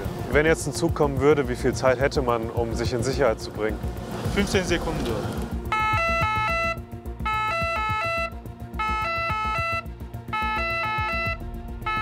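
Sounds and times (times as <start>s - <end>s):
electronic warning tones: 5.6s - 12.0s.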